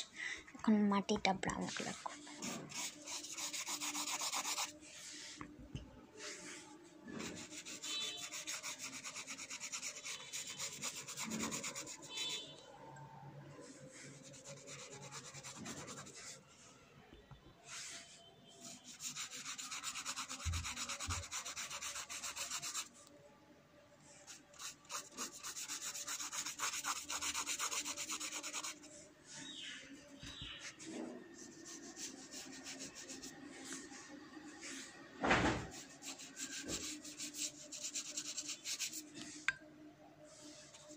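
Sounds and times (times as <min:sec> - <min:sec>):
paintbrush scrubbing paper: 0:01.9 - 0:05.4, 0:06.1 - 0:12.6, 0:13.5 - 0:16.8, 0:17.6 - 0:23.1, 0:24.0 - 0:39.4, 0:40.2 - 0:40.9.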